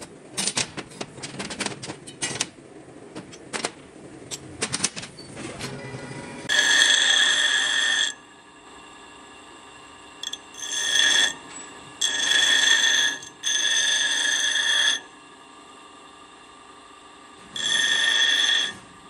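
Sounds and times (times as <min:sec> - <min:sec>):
grinder screeching on metal: 0:06.0 - 0:08.2, 0:10.2 - 0:15.1, 0:17.4 - 0:18.9
bench grinder humming: 0:06.4 - 0:08.3, 0:09.8 - 0:19.0.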